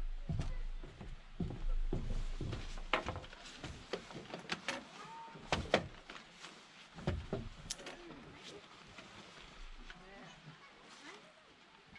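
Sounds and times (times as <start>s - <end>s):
camping gear knocking on wood: 5.5s - 6.0s, 7.0s - 7.7s.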